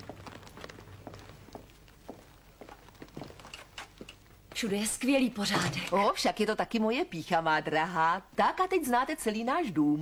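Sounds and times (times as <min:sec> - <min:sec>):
footsteps on stone tiles: 0:00.0 - 0:04.7.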